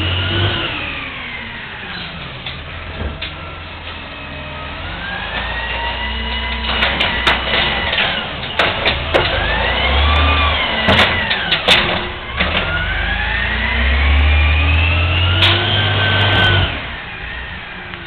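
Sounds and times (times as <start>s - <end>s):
garbage truck engine revving: 0.0s - 18.0s
hydraulic whine: 0.0s - 18.0s
sharp bangs: 6.2s - 13.1s.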